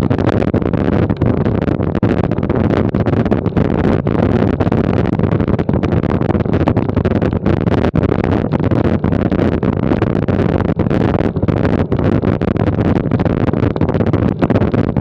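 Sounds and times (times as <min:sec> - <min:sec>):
bicycle rattling over cobbles: 0:02.2 - 0:10.2.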